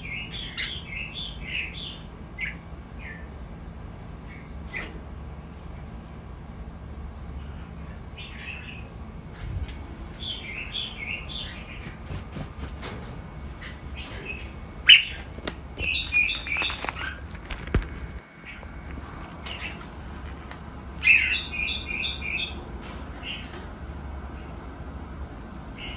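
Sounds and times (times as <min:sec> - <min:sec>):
birds chirping: 0:00.0 - 0:03.4, 0:07.3 - 0:20.2, 0:20.8 - 0:24.8
sharp bird clicks: 0:14.0 - 0:17.2.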